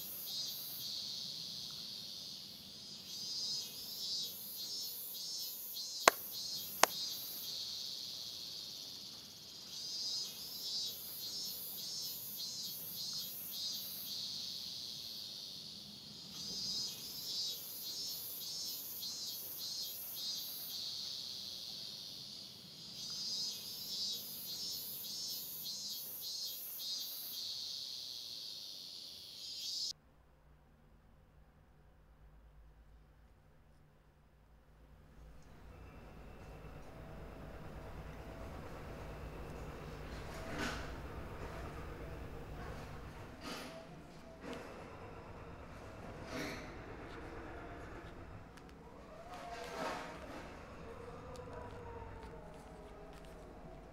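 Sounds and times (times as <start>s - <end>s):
insects chirring: 0.0s - 29.9s.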